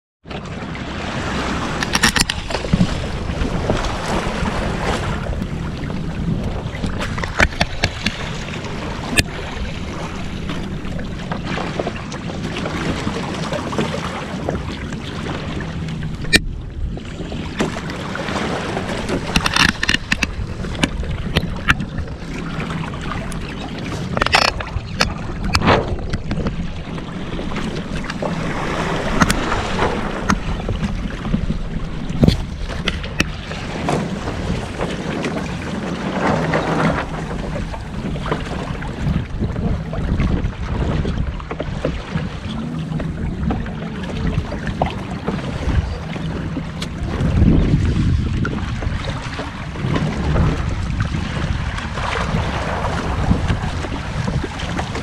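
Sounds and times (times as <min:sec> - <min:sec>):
water splashing along a hull: 0:00.2 - 0:55.0
wind noise on microphone: 0:00.9 - 0:55.0
sharp slap on hull: 0:24.2 - 0:26.6, 0:32.2 - 0:34.4.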